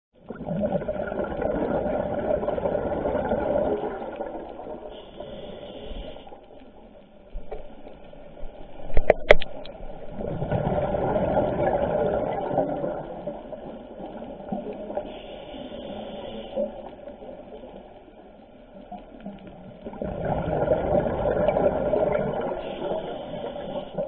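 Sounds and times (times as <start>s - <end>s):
exhaled bubbles rushing: 0.2s - 5.3s, 8.9s - 15.0s, 19.6s - 24.0s
regulator inhale: 4.9s - 6.5s, 15.0s - 16.9s, 22.6s - 24.0s.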